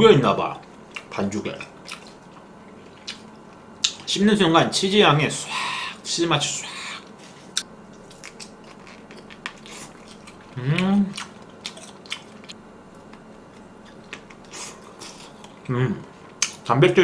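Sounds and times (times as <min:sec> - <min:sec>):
person chewing food: 0:00.9 - 0:04.0, 0:06.7 - 0:16.7
person humming briefly: 0:06.6 - 0:07.1.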